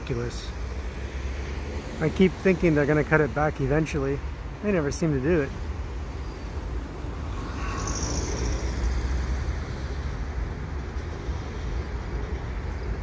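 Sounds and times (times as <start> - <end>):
freight train rumbling over bridge: 0.0 - 13.0
car tyre hiss passing: 6.1 - 12.2.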